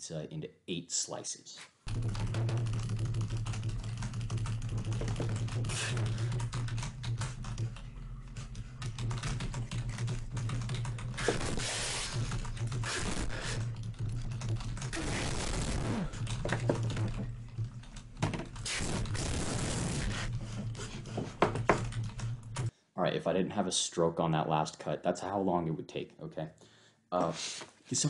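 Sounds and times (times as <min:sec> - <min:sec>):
steady low hum: 0:01.9 - 0:22.7.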